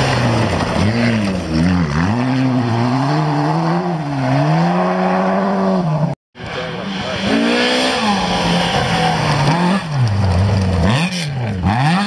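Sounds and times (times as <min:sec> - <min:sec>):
rally car engine revving: 0:00.0 - 0:12.0.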